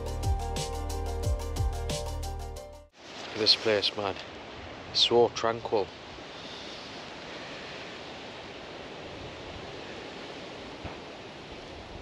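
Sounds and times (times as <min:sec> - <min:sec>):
wind hiss: 0:03.0 - 0:12.0.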